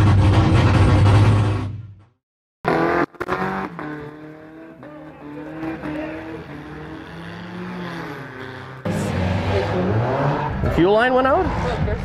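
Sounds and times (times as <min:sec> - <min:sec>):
car engines revving: 0:02.6 - 0:12.0.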